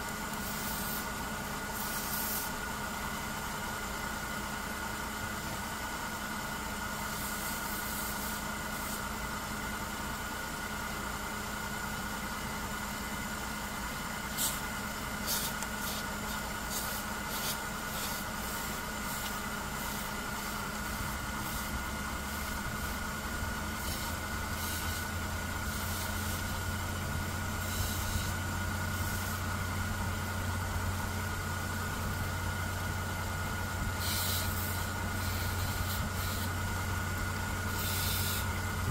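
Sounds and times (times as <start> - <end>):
car engine idling: 0.0 - 38.9
high-pitched whine: 15.2 - 30.5, 33.7 - 36.9, 37.6 - 38.9.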